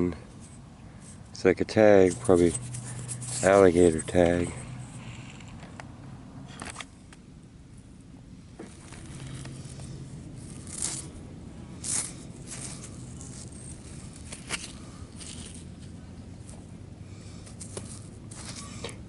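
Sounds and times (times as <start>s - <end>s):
hand scraping through sand and gravel: 1.9s - 5.5s, 8.7s - 16.5s, 17.2s - 18.9s.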